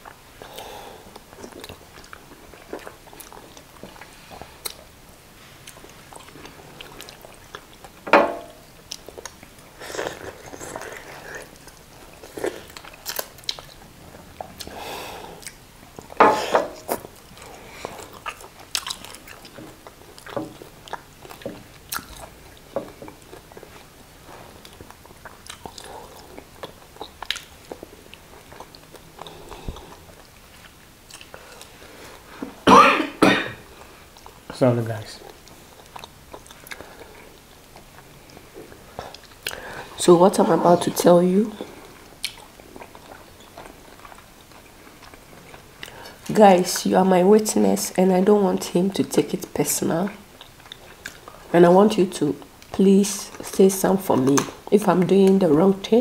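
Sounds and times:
chewing and lip-smacking: 0:00.0 - 0:05.0, 0:05.6 - 0:08.0, 0:08.7 - 0:14.8, 0:15.4 - 0:16.2, 0:16.8 - 0:31.8, 0:33.8 - 0:34.5, 0:35.2 - 0:39.8, 0:41.4 - 0:46.8, 0:50.0 - 0:51.5.

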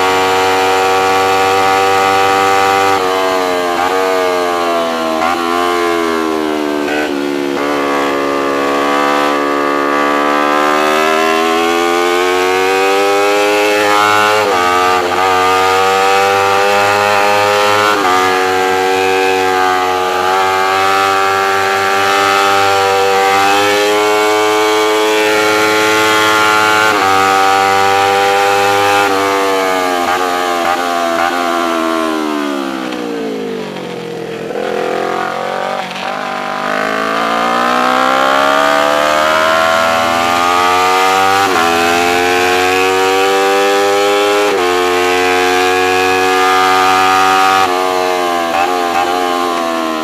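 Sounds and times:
race motorcycle engine revving: 0:00.0 - 0:50.0.

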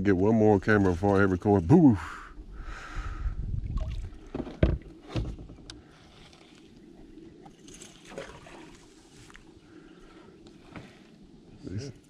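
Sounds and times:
low rumble: 0:02.1 - 0:04.3
knocks against a canoe hull: 0:04.3 - 0:05.7.

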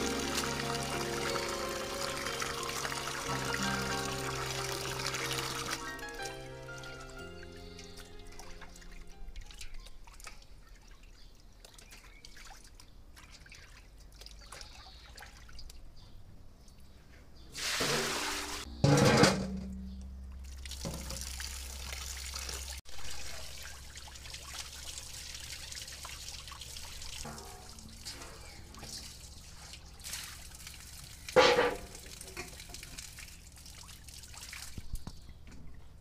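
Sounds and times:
water pouring and splashing: 0:00.0 - 0:15.9, 0:17.6 - 0:18.7, 0:20.3 - 0:35.8
metal bowl clanking: 0:17.9 - 0:20.2, 0:27.2 - 0:29.0, 0:31.4 - 0:32.6.

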